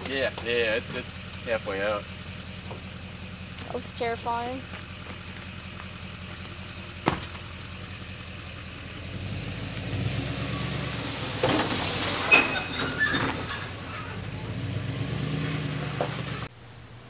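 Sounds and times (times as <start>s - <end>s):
log scraping off trailer bed: 0.0s - 16.5s
heavy thud of log: 7.0s - 7.5s.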